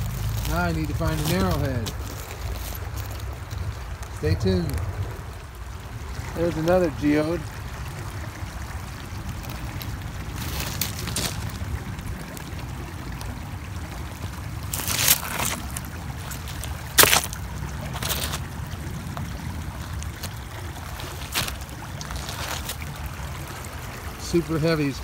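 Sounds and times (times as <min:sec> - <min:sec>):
footsteps crunching on gravel: 0:00.0 - 0:03.8, 0:09.4 - 0:12.2, 0:14.2 - 0:23.1
steady low rumble: 0:00.0 - 0:24.2.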